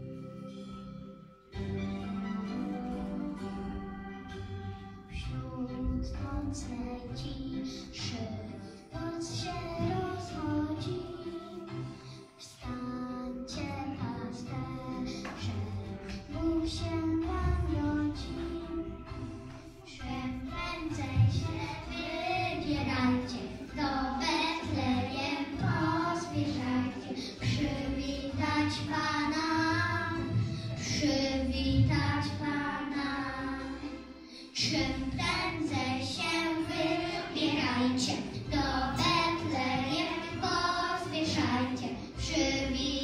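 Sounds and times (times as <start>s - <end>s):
instrumental accompaniment: 0.0s - 43.0s
children singing: 2.0s - 43.0s.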